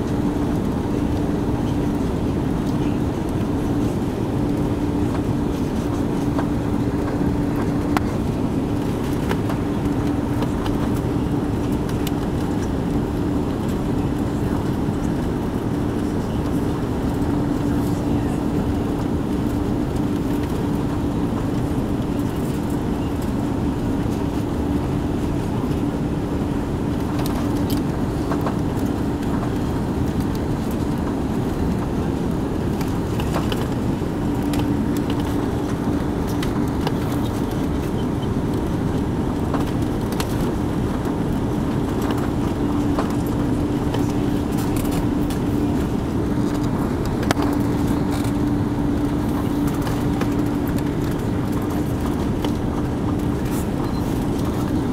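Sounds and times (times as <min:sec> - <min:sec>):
airliner cabin engine and airflow rush: 0:00.0 - 0:54.9
constant low hum: 0:00.0 - 0:54.9.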